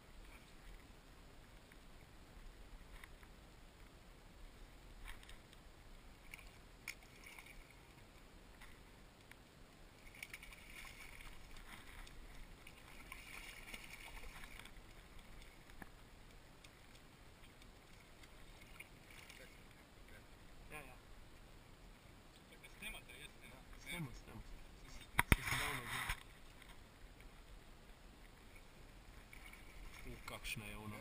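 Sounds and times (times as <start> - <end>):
water lapping against boat hull: 10.0 - 20.2, 28.2 - 31.0.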